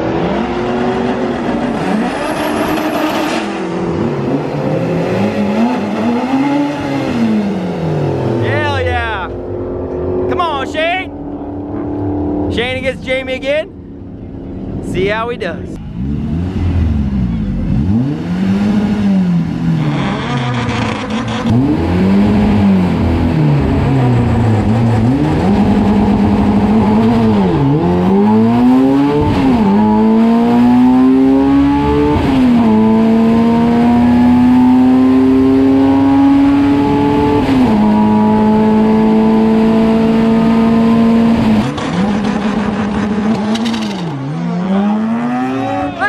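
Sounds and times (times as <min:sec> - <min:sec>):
truck engine at full throttle: 0:15.4 - 0:46.0.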